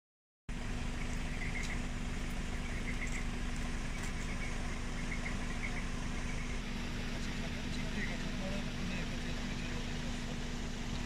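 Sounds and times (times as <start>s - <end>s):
vehicle engine idling: 0.5s - 11.0s
faint high chirps: 0.9s - 6.6s.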